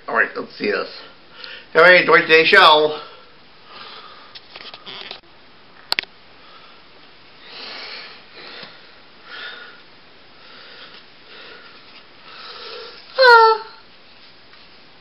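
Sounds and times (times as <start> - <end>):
person breathing and sniffing: 7.4 - 13.1.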